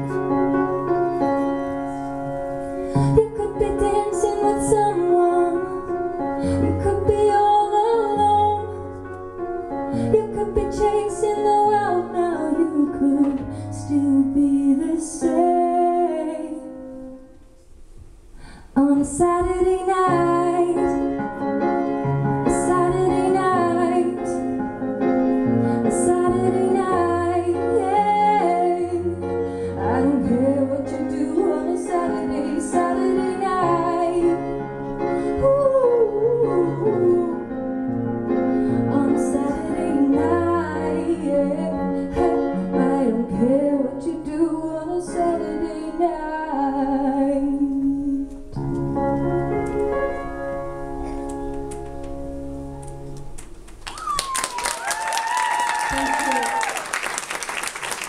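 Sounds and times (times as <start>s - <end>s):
woman singing: 2.9s - 9.0s, 10.0s - 16.9s, 18.8s - 21.2s, 22.4s - 24.6s, 25.8s - 34.6s, 35.3s - 37.8s, 38.8s - 48.6s
keyboard piano chords: 19.2s - 53.8s.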